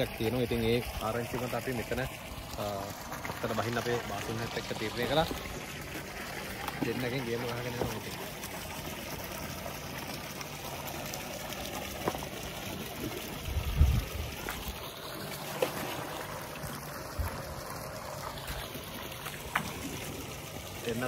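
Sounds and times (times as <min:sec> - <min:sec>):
water trickling: 0:00.0 - 0:21.0.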